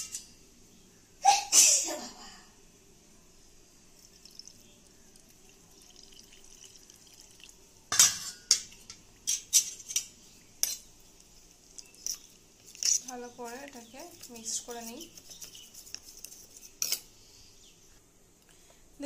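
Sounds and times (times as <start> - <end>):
milk pouring into bowl: 4.0 - 7.7
metal spoon clinking bowls: 7.9 - 10.9, 16.6 - 17.1.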